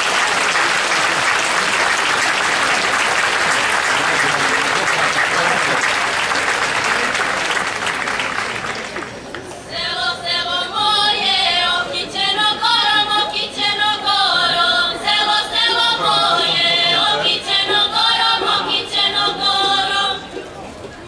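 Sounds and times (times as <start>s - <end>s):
women singing unaccompanied: 9.7s - 20.4s.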